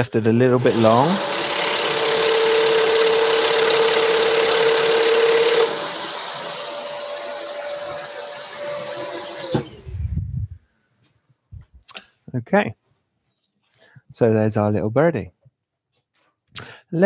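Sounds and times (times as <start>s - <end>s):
scroll saw cutting plywood: 0.5s - 9.9s.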